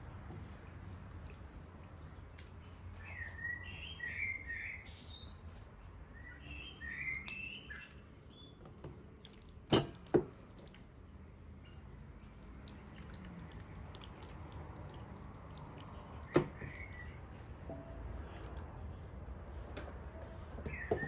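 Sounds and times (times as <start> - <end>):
small birds chirping: 2.4 - 8.8, 13.7 - 17.5, 20.3 - 21.0
hands squelching raw chicken: 7.1 - 19.7.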